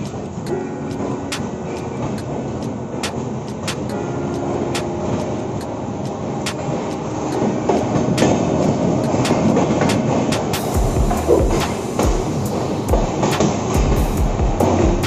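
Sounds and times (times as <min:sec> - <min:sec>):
sharp rail clicks: 0:00.0 - 0:14.8
train wheels rumbling on rail: 0:00.0 - 0:15.0
low thumps: 0:10.8 - 0:13.2.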